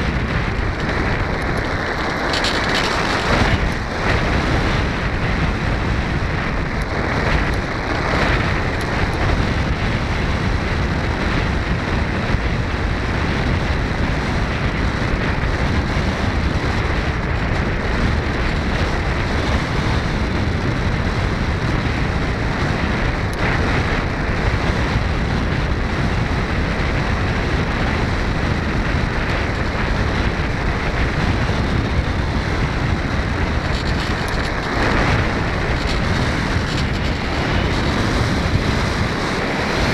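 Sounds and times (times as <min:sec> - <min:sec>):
wind rushing over microphone: 0:00.0 - 0:39.9.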